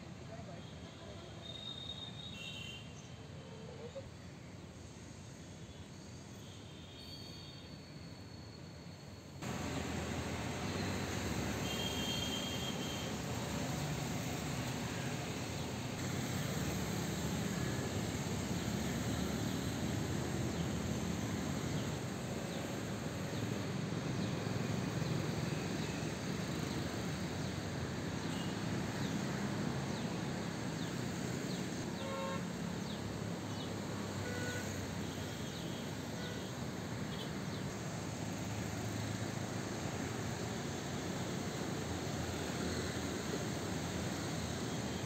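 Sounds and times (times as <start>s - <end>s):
floodwater rushing through a channel: 9.5s - 11.9s
vehicle horn: 11.6s - 13.2s, 32.0s - 32.5s, 34.2s - 34.8s.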